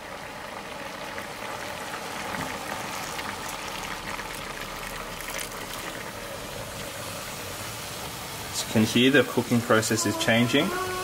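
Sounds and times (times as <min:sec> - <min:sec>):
bubbling and crackling: 0:00.0 - 0:08.1
water pouring into wok: 0:00.0 - 0:10.2.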